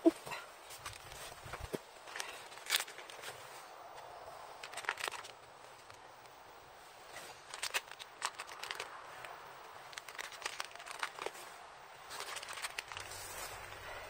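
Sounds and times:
plastic bag crinkling: 7.4 - 14.0.

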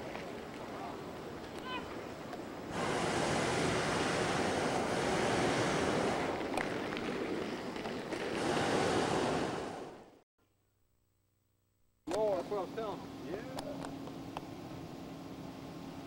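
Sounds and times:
wind on microphone: 2.7 - 10.0.

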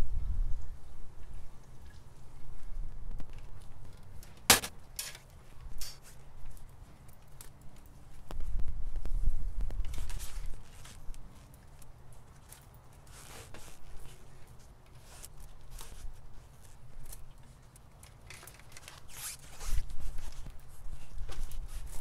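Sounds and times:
rustling and scraping of metal parts: 3.3 - 8.2, 9.8 - 22.0.

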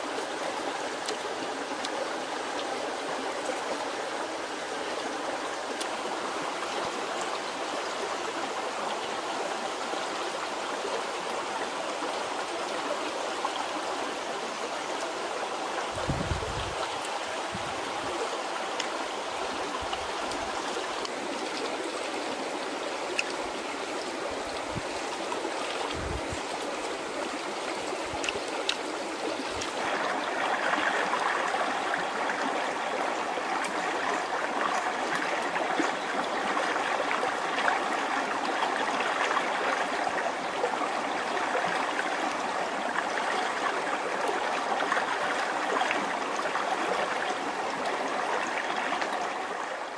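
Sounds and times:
stream rushing: 0.0 - 49.9.

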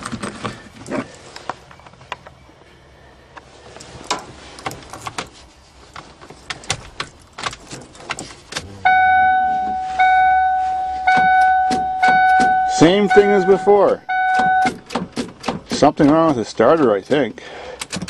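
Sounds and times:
car keys jangling: 6.5 - 15.0
car warning chime: 8.8 - 14.8.

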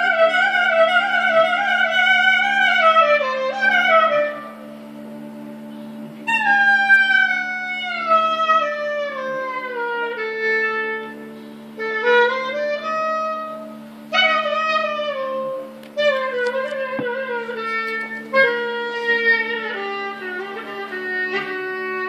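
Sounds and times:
steady low hum: 0.0 - 22.0
single melody line: 11.8 - 22.0.

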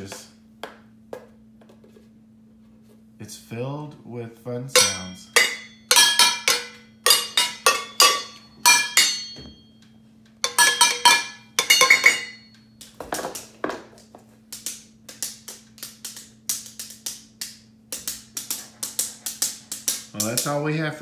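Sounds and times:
sticks hitting steel cans: 4.8 - 9.6, 10.4 - 12.4.

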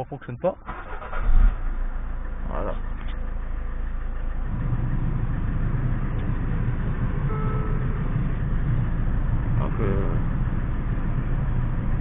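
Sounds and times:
diesel engine idling: 0.0 - 12.0.

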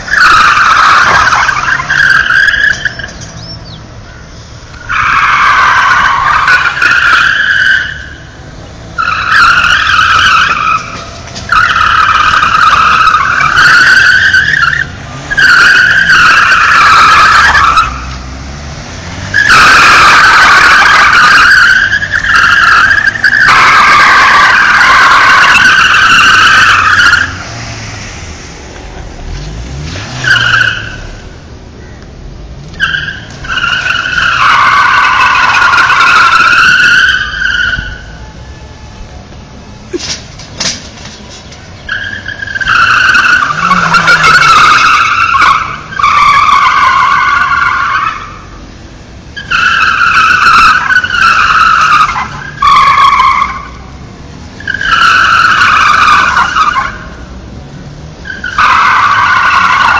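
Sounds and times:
tyres squealing: 0.0 - 28.0, 28.7 - 31.4, 32.6 - 48.7, 49.3 - 57.3, 58.2 - 59.9
car engine revving: 0.0 - 59.9.

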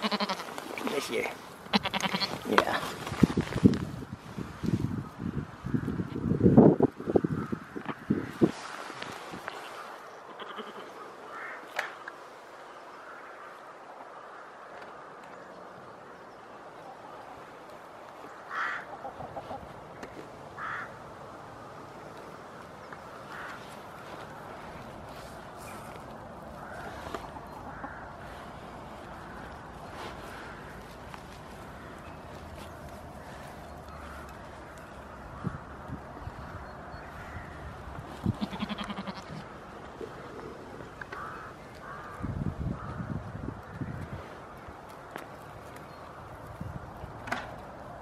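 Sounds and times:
goat bleating: 0.0 - 0.5, 1.7 - 2.6, 10.3 - 10.9, 38.3 - 39.4
outdoor background hiss: 0.0 - 36.2
short animal calls: 10.3 - 11.6.

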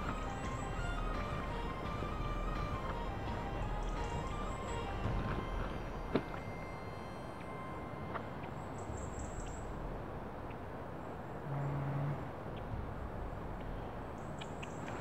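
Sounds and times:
low hum: 0.0 - 10.4.

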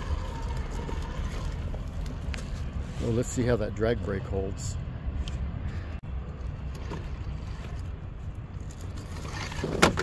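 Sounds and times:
toy truck motor rumble: 0.0 - 2.8, 8.6 - 10.0.

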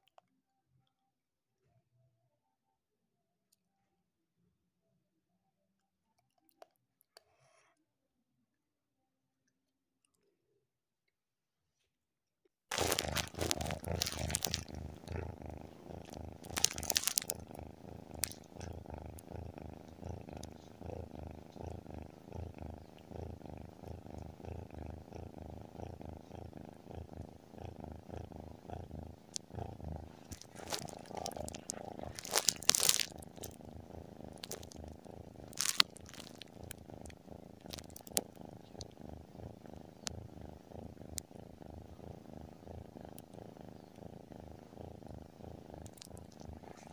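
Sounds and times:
scratchy rustles: 12.7 - 19.2, 30.0 - 33.6, 34.3 - 36.6
kitten purring: 12.7 - 46.9.

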